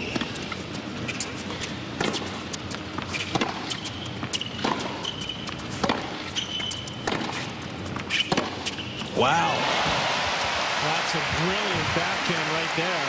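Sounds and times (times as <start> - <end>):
shoes squeaking on court: 0.0 - 9.1
tennis ball hit with racquets: 2.0 - 10.8.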